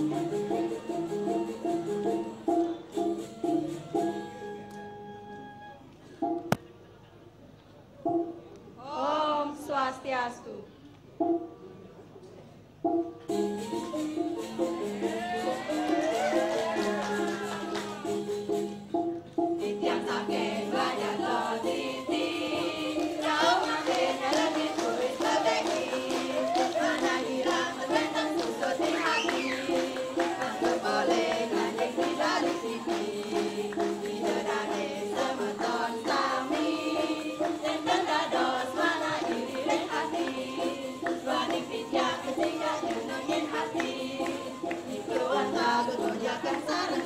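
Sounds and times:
backing music with steady beat: 0:00.0 - 0:05.2, 0:08.0 - 0:08.5, 0:11.1 - 0:11.8, 0:12.7 - 0:47.0
women singing together: 0:14.5 - 0:18.2, 0:19.6 - 0:47.0.

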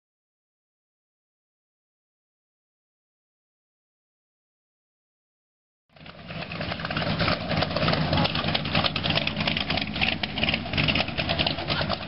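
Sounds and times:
truck engine rumbling past: 0:05.9 - 0:12.0.

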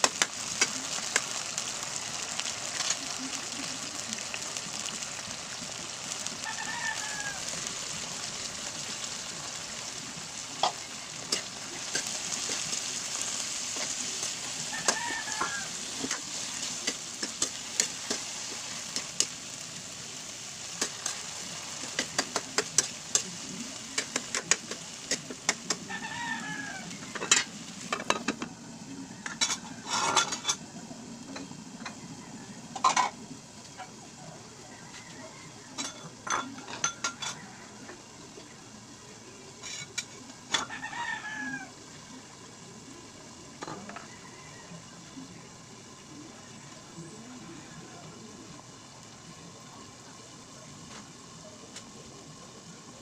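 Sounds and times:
vegetables sizzling in a wok: 0:00.0 - 0:53.0
chicken calling: 0:06.2 - 0:07.7.

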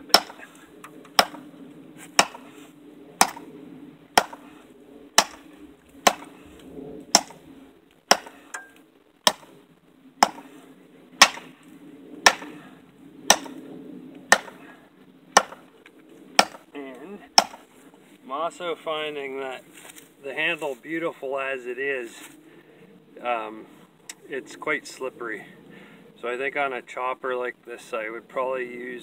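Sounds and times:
machete chopping into wood: 0:00.1 - 0:00.4, 0:01.2 - 0:01.4, 0:02.2 - 0:02.5, 0:03.2 - 0:03.5, 0:04.2 - 0:04.5, 0:05.2 - 0:05.4, 0:06.1 - 0:06.3, 0:07.1 - 0:07.4, 0:08.1 - 0:08.7, 0:09.3 - 0:09.5, 0:10.2 - 0:10.5, 0:11.2 - 0:11.5, 0:12.3 - 0:12.6, 0:13.3 - 0:13.6, 0:14.3 - 0:14.6, 0:15.4 - 0:15.6, 0:16.4 - 0:16.6, 0:17.4 - 0:17.6.

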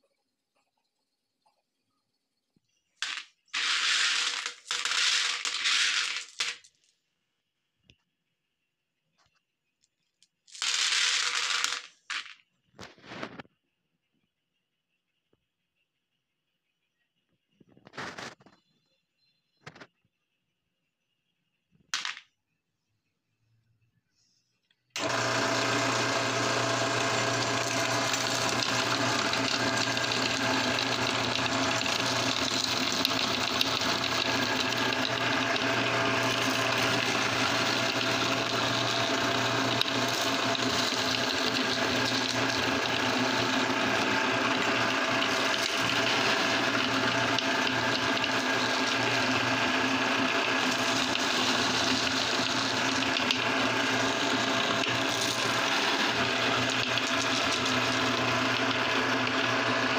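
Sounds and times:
candies being ground: 0:03.0 - 0:06.9, 0:10.3 - 0:13.4, 0:25.0 - 0:59.9
meat grinder motor humming: 0:25.0 - 0:59.9.

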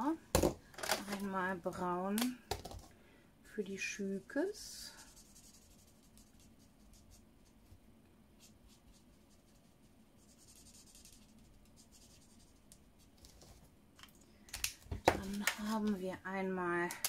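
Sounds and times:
marker scratching on paper: 0:05.0 - 0:07.2, 0:08.4 - 0:12.7.

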